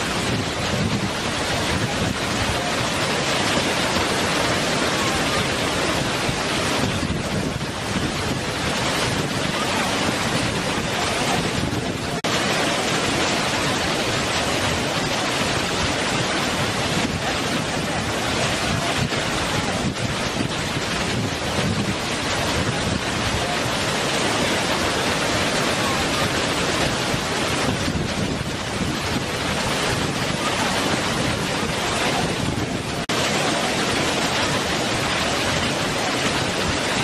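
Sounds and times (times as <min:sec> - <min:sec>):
waterfall rushing over rock: 0:00.0 - 0:37.0.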